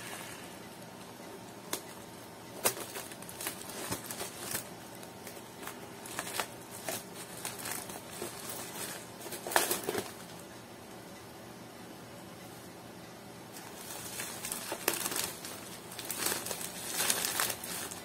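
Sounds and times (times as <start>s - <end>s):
packaging crinkling and tearing: 2.6s - 10.4s, 13.6s - 18.0s.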